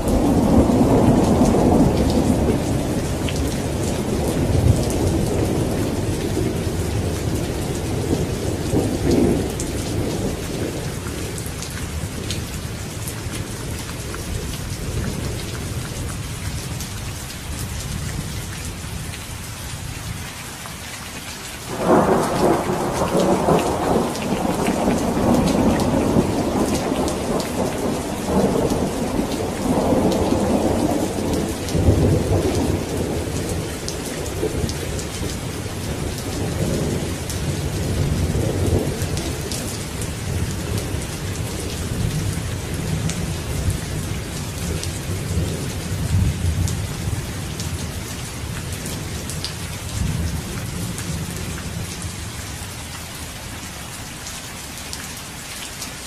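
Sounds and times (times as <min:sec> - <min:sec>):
thunder rumbling: 0:00.0 - 0:15.7, 0:21.7 - 0:52.1
steady rain: 0:00.0 - 0:56.0.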